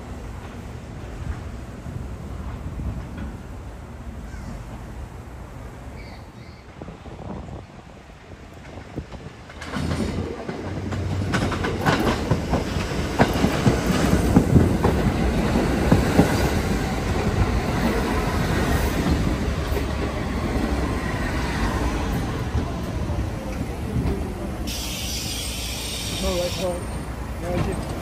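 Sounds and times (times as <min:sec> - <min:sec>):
train wheels clattering on track: 0:02.3 - 0:03.6, 0:08.1 - 0:28.0.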